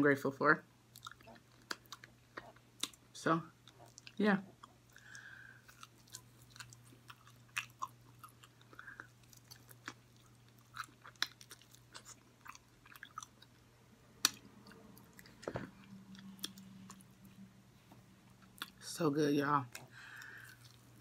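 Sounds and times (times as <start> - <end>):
wet chewing: 0.9 - 17.4, 18.3 - 18.8, 19.7 - 21.0
lip smacks and mouth clicks: 14.2 - 15.5, 16.1 - 17.1, 18.4 - 18.8.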